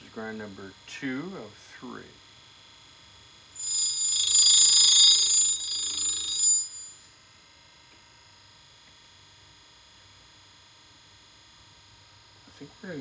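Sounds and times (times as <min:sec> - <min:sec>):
grinding wheel screeching: 0:03.6 - 0:07.0.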